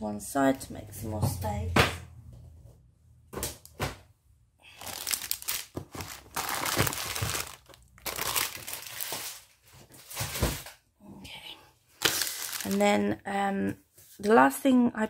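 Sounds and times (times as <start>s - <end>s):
cellophane packaging crinkling: 4.7s - 10.7s, 12.0s - 13.0s.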